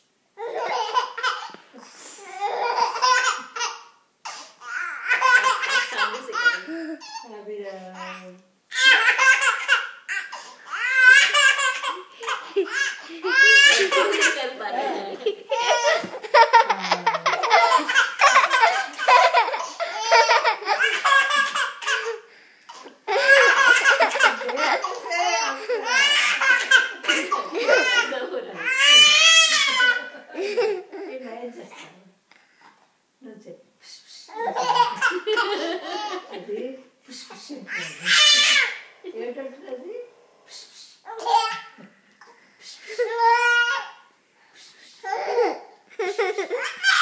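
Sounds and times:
baby laughing: 0:00.4 - 0:01.6, 0:02.3 - 0:07.3, 0:08.7 - 0:31.2, 0:34.3 - 0:36.4, 0:45.1 - 0:47.0.

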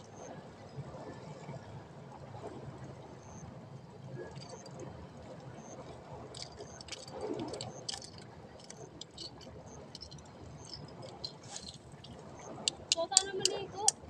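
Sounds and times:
sea and wind rushing: 0:00.0 - 0:14.0
small clicks and taps: 0:06.4 - 0:14.0.

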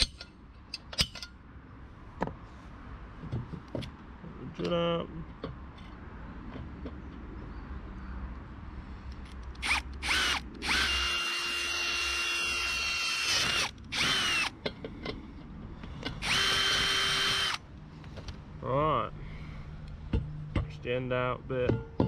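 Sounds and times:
cordless drill boring metal: 0:09.6 - 0:14.5, 0:16.2 - 0:17.6.

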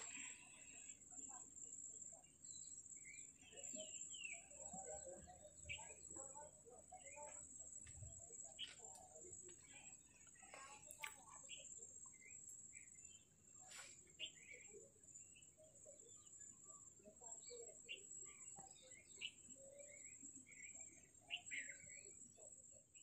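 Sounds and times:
faint bird chirps: 0:00.0 - 0:23.0.

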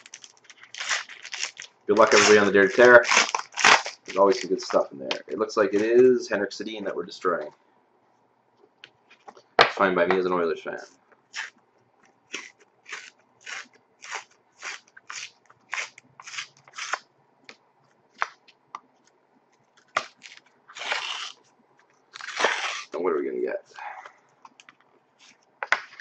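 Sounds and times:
cardboard card ripping: 0:00.0 - 0:04.8, 0:12.3 - 0:17.0, 0:19.9 - 0:21.4, 0:22.1 - 0:23.0.

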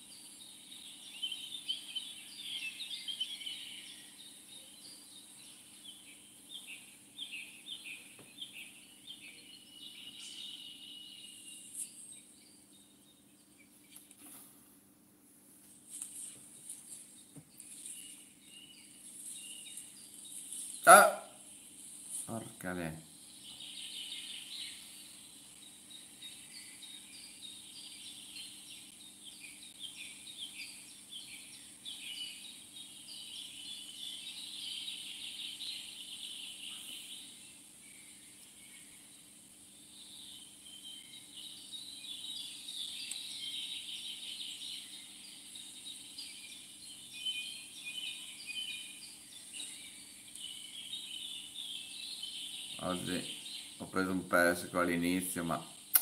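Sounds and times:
faint steady high hiss: 0:00.0 - 0:56.0
insects chirping and trilling: 0:23.1 - 0:55.9.

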